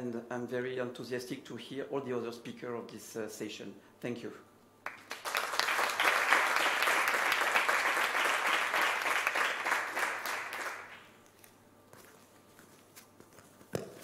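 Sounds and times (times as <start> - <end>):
audience applauding: 4.8 - 11.1.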